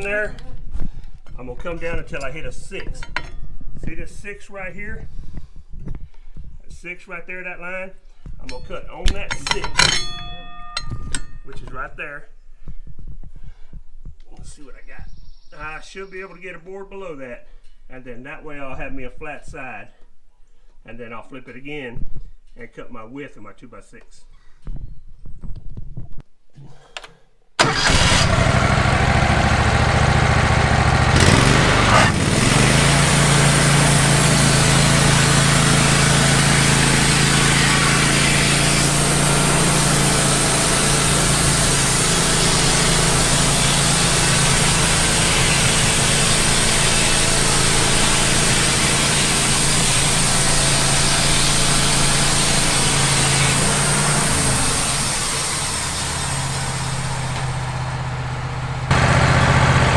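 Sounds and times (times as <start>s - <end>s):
sawmill engine running: 27.6s - 59.9s
band blade cutting log: 31.2s - 57.5s.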